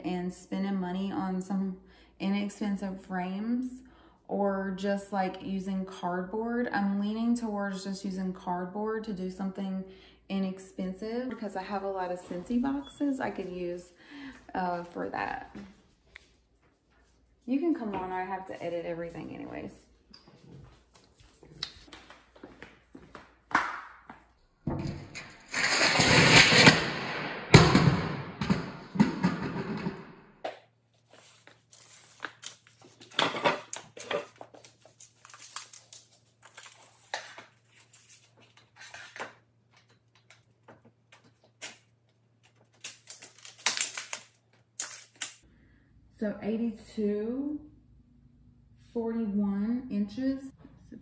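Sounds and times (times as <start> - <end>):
footsteps in flip-flops on tile: 20.3 - 23.4.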